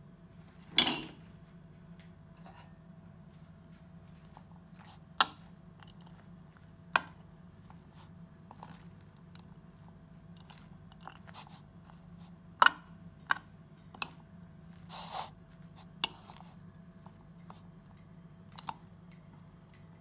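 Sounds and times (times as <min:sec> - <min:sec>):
salad rustling: 0:03.3 - 0:19.8
fork clinking on bowl: 0:17.4 - 0:19.9.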